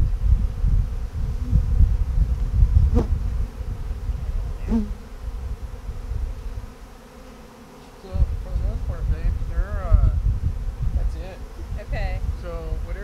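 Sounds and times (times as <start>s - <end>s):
honeybees buzzing: 0.0s - 13.0s
single bees flying past: 0.4s - 9.5s.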